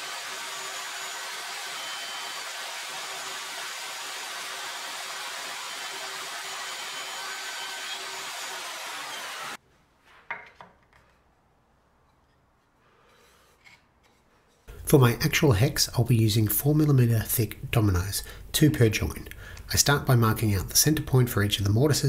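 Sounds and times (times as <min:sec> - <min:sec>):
plunge router running: 0:00.0 - 0:09.6.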